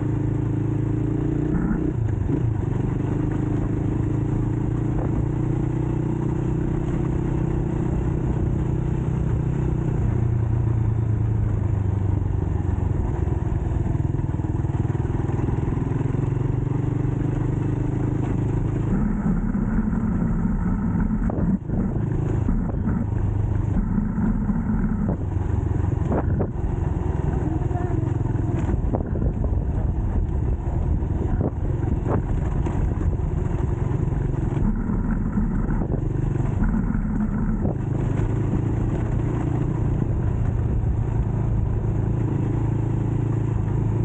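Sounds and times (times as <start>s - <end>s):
dirt bike engine revving: 1.2s - 2.5s, 18.0s - 26.6s, 34.3s - 39.4s.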